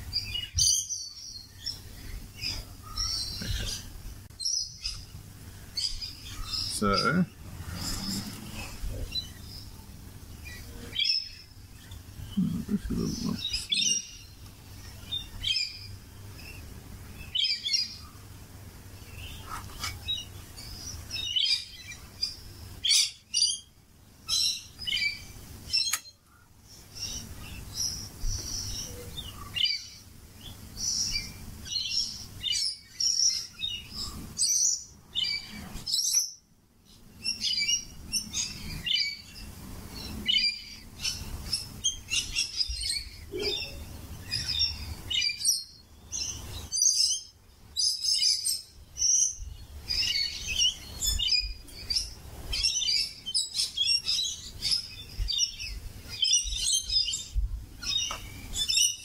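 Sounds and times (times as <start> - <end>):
parrots chirping and calling: 0.1 - 9.7, 10.4 - 14.3, 37.2 - 39.3, 40.0 - 59.0.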